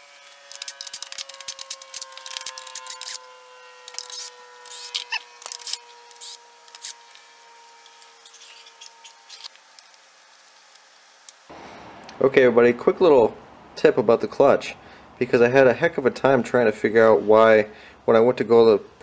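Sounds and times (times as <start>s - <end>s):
cordless drill running: 0.0s - 9.5s.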